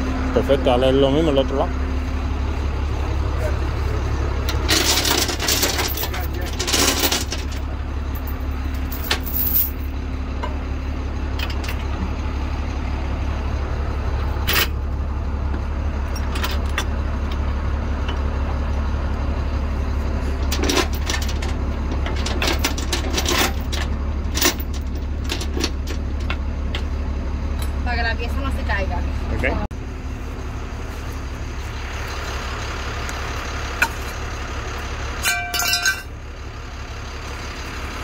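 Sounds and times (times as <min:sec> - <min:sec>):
truck engine idling: 0:00.0 - 0:38.0
steel chains clanking and rattling: 0:04.5 - 0:10.6, 0:11.3 - 0:12.0, 0:14.3 - 0:14.8, 0:16.0 - 0:17.4, 0:20.4 - 0:26.4, 0:35.2 - 0:36.2.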